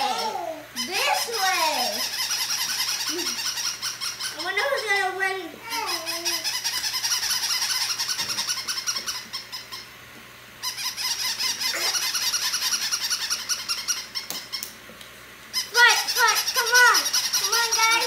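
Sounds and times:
toy puppies electronic barking: 0.0 - 4.8, 15.6 - 18.0.

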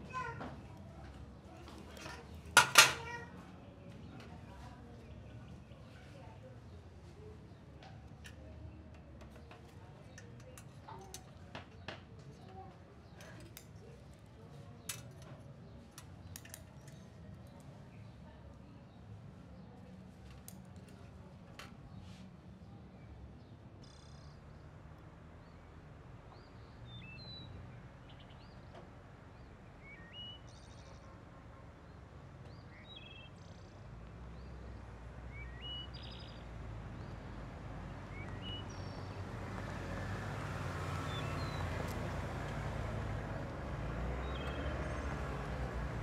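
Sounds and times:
birds chirping: 25.4 - 31.2, 31.8 - 46.0
car engine approaching: 36.5 - 46.0.

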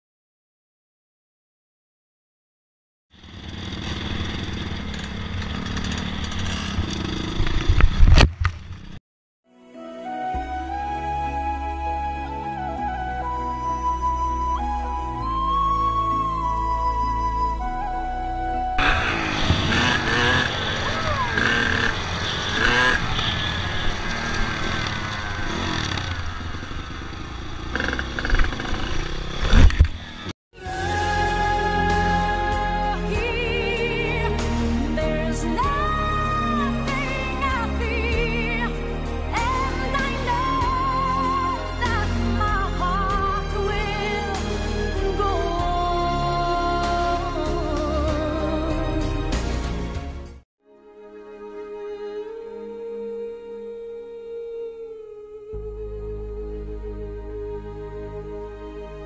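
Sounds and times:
dirt bike engine running: 3.1 - 9.0, 18.8 - 30.3.

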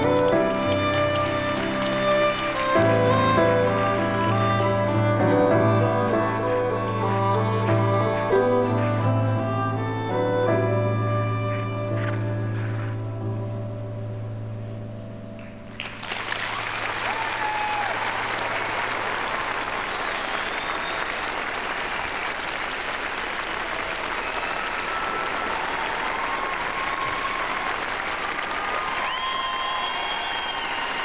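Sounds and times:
audience applause: 0.0 - 9.1, 15.7 - 31.0.

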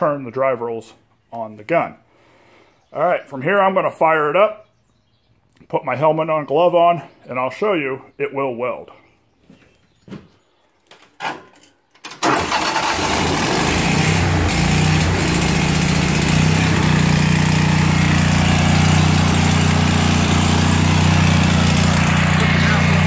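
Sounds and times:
welder engine starting and running: 12.1 - 23.0.

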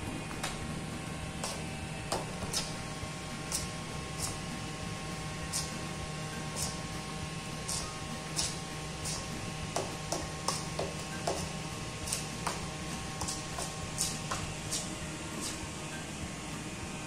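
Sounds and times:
steady hum: 0.0 - 17.0
fork scraping a metal bowl: 5.4 - 5.8, 7.6 - 9.3, 13.2 - 15.6.

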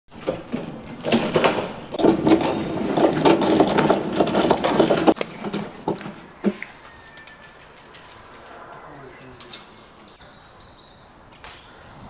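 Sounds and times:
metal table scraping over paving: 0.1 - 8.7.

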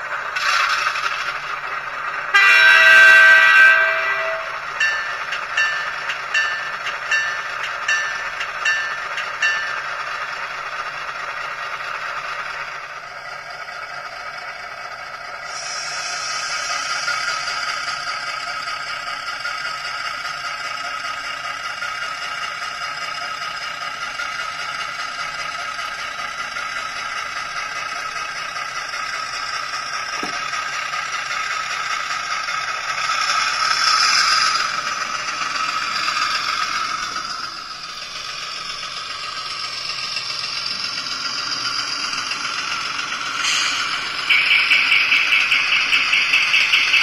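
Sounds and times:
model train rattling on track: 0.0 - 47.0
tinny diesel engine sound from speaker: 10.1 - 47.0.

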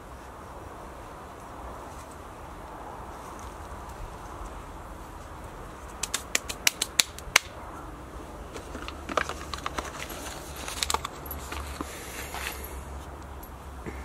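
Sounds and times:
sharp clicks and taps: 5.9 - 7.5
hands working soil in planter: 8.4 - 13.2.

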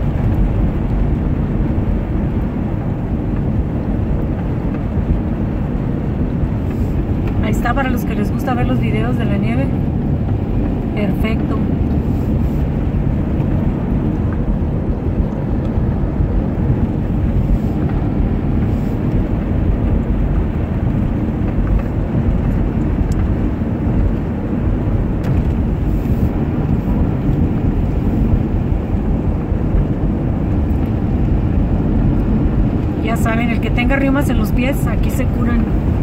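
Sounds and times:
car driving on snowy road: 0.0 - 36.0.

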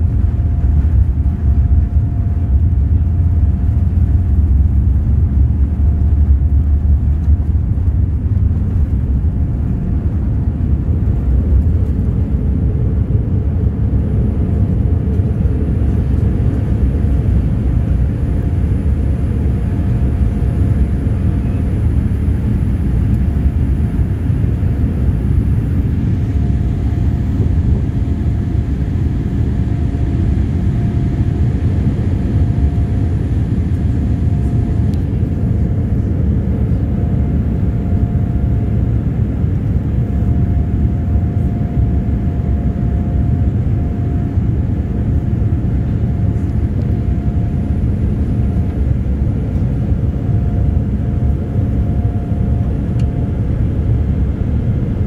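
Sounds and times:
aircraft cabin engine rumble: 0.0 - 55.0
faint high whine: 13.0 - 55.0.

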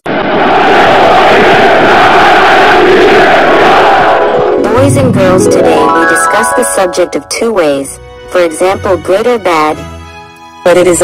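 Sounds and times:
crowd cheering and shouting: 0.3 - 6.2.

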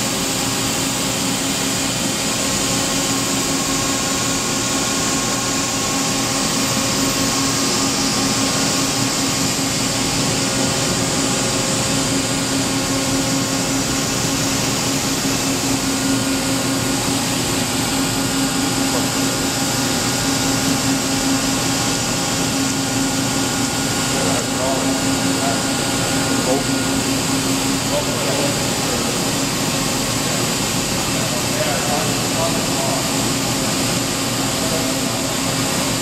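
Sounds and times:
machinery hum: 0.0 - 36.0.

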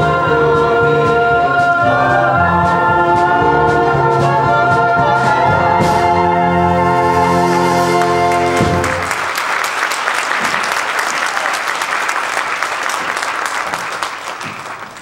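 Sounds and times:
held music chord: 0.0 - 9.1
audience applause: 8.0 - 15.0.

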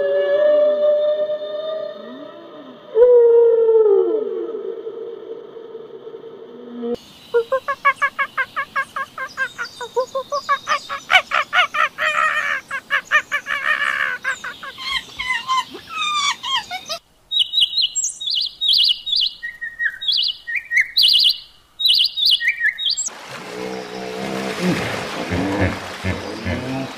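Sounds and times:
rapid repeated bird calls: 7.0 - 24.2
sharp high bird chirps: 17.3 - 23.1.

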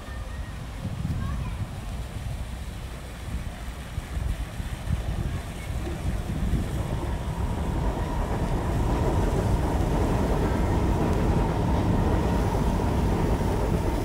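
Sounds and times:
low rumbling noise: 4.9 - 14.0
faint whine: 6.2 - 14.0.

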